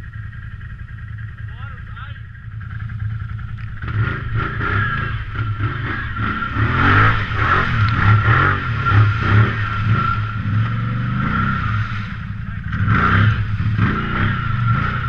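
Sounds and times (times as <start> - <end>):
atv engine revving: 0.0 - 15.0
steady high whine: 0.0 - 15.0.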